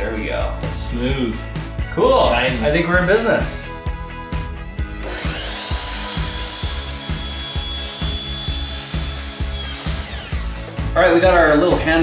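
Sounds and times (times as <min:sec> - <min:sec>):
background music with steady beat: 0:00.0 - 0:12.0
miter saw whining: 0:05.0 - 0:11.0.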